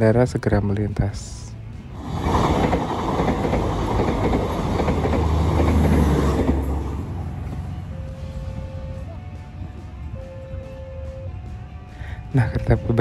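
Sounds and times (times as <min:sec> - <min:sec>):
low steady drone: 0:00.8 - 0:13.0
train wheels on rails: 0:01.9 - 0:09.0.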